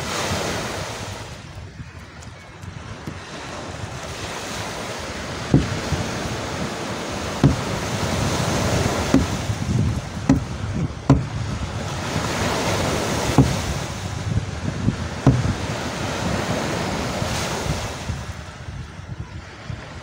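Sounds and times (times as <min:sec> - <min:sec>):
surf rushing: 0:00.0 - 0:20.0
wind buffeting microphone: 0:00.0 - 0:20.0
sharp knocks: 0:05.5 - 0:06.0, 0:07.4 - 0:11.5, 0:13.1 - 0:14.0, 0:15.2 - 0:15.6.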